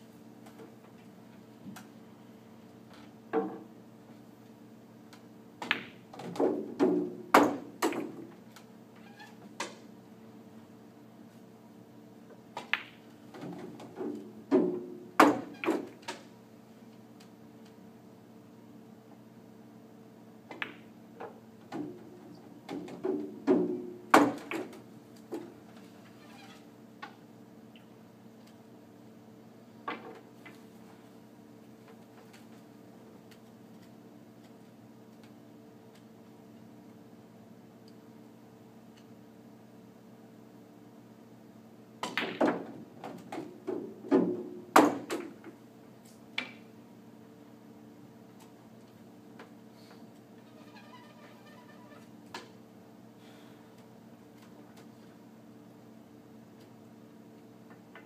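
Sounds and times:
pool balls clacking: 20.6s - 25.5s
pool balls clicking: 50.5s - 52.6s.

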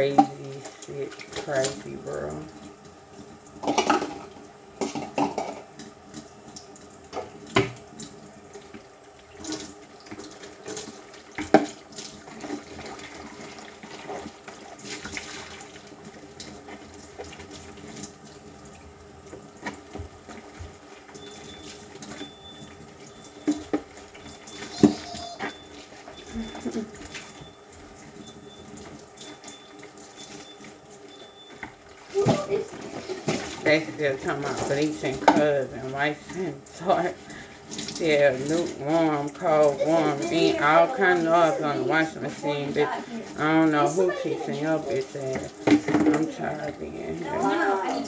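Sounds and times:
sink tap running: 0.0s - 48.0s
dishes clinking and knocking: 3.6s - 5.6s, 45.6s - 46.3s.

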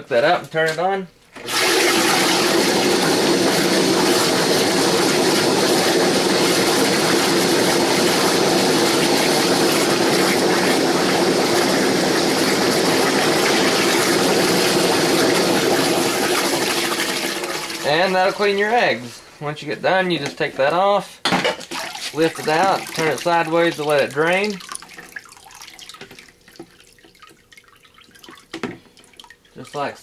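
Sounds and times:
air blower running: 1.4s - 19.2s
water bubbling and churning: 21.8s - 29.6s.

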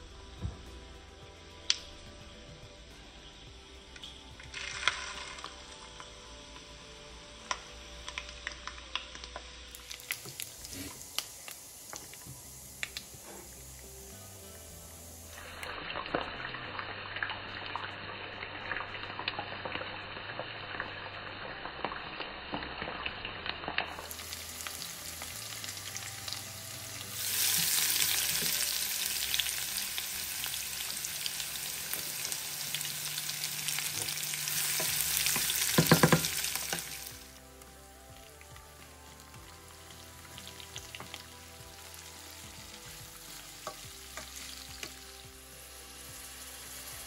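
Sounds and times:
food sizzling in a pan: 4.4s - 47.0s
utensil knocking on pan: 34.8s - 36.9s.

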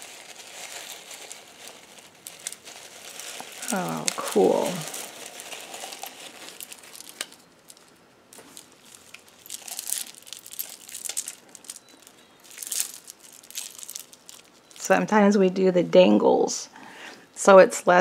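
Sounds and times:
plastic wrapping crinkling: 0.0s - 15.1s
beads and metal charms clicking: 5.8s - 14.9s.

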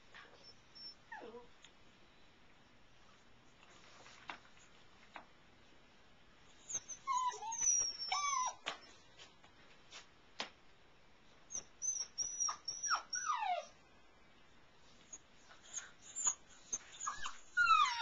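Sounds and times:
puppy whimpering and squealing: 0.4s - 1.5s, 6.6s - 8.7s, 11.5s - 13.8s, 15.1s - 18.0s.

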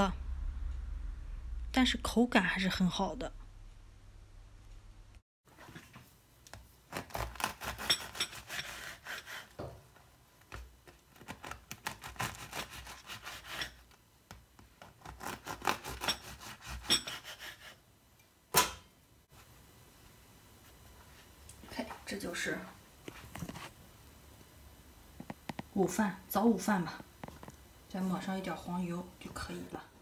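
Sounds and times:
knife sawing through bread: 6.9s - 9.6s, 11.2s - 13.8s, 15.0s - 17.8s.

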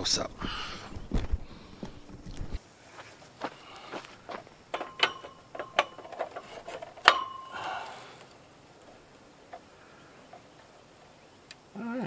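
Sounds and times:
metal clinking and knocking: 4.2s - 7.9s.

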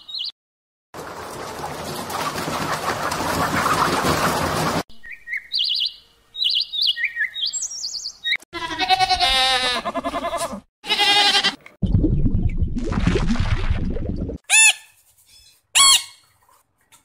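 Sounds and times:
high bird chirps: 0.0s - 0.3s, 4.9s - 8.4s
goat bleating: 8.5s - 11.7s.

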